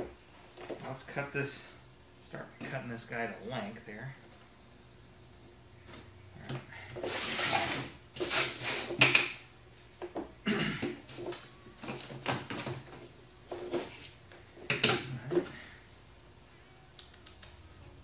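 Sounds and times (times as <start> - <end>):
cardboard being cut: 7.0 - 9.0.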